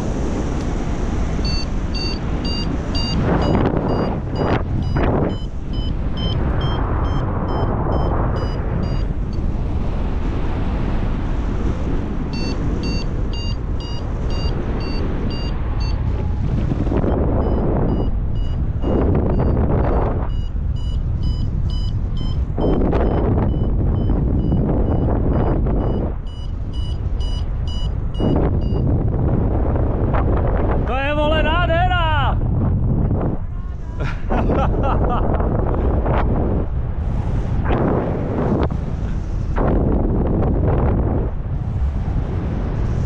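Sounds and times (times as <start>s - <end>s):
wind rush on microphone: 0.0s - 43.0s
variometer beeping: 0.6s - 9.8s, 12.0s - 29.1s.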